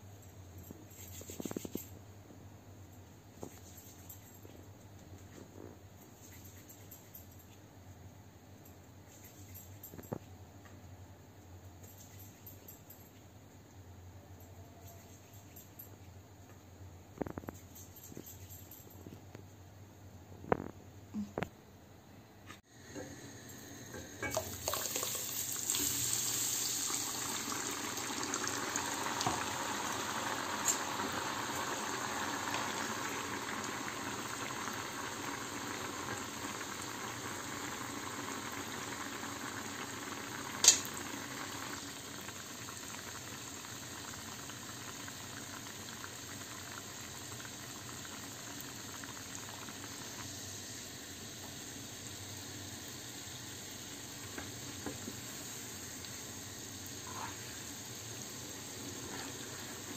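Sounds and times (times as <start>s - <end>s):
liquid bubbling in a pan: 23.9s - 59.9s.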